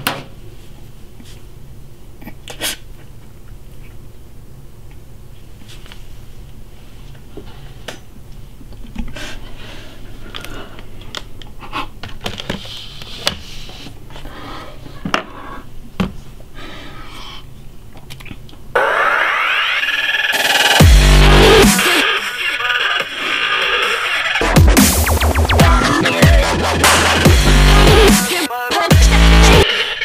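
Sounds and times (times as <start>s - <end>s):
room hum: 0.0s - 30.0s
electronic dance music: 18.8s - 30.0s.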